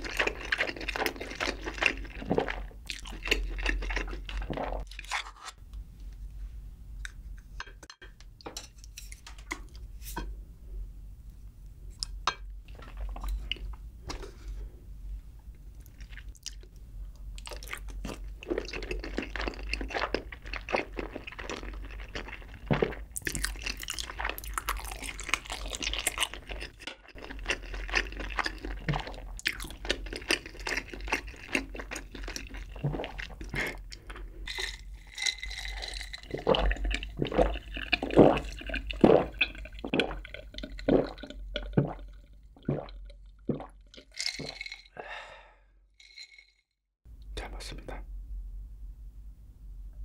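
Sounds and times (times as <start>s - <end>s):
close-miked chewing: 0.0s - 4.9s, 15.8s - 43.4s
drink gulps: 35.4s - 45.4s.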